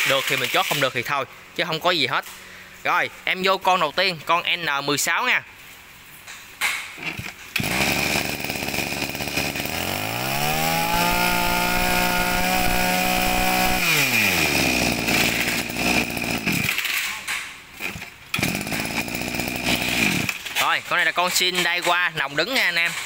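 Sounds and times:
brush cutter engine revving: 0:07.5 - 0:16.9, 0:17.8 - 0:20.5.

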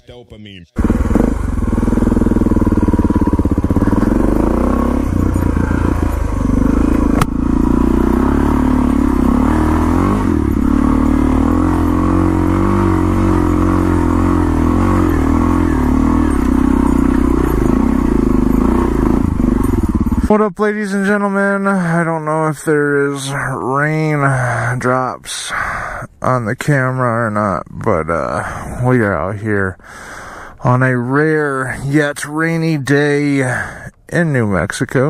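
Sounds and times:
motorcycle engine running: 0:00.8 - 0:20.4.

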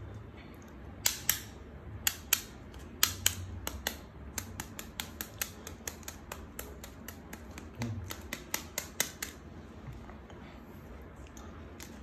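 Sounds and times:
eggshells clicking together: 0:01.0 - 0:09.4.

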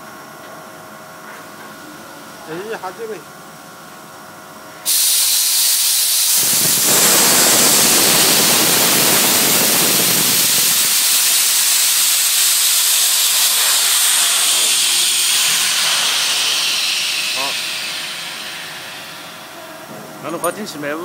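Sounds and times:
hiss of rushing air: 0:04.9 - 0:19.9.

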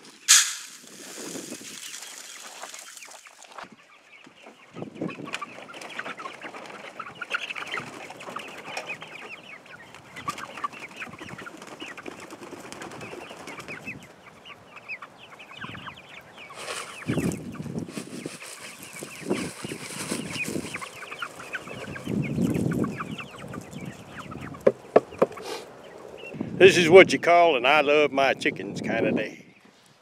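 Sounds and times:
rustling: 0:00.0 - 0:03.7, 0:16.5 - 0:22.0
hens clucking: 0:01.2 - 0:26.8.

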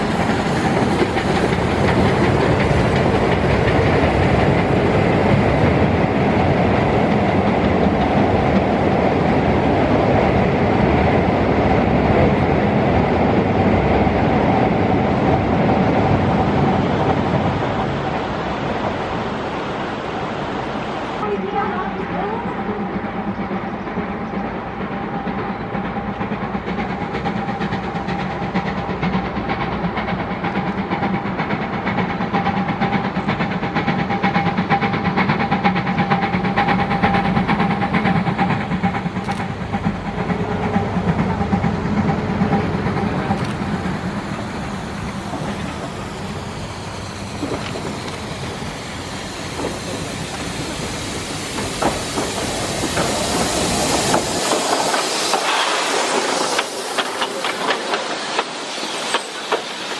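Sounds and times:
steam hissing: 0:00.0 - 0:59.9
steam locomotive rumbling: 0:00.0 - 0:59.9.

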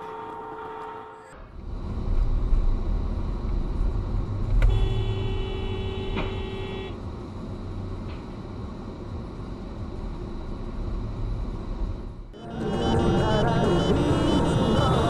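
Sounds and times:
car horn steady note: 0:04.6 - 0:07.0.

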